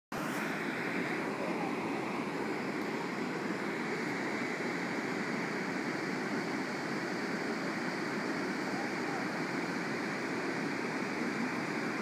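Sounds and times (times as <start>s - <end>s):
fast-flowing creek water: 0.1s - 12.0s.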